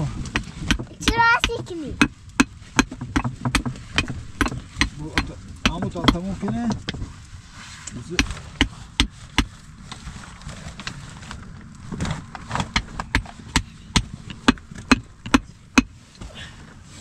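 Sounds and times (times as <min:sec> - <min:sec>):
chopping blows: 0:08.0 - 0:09.6.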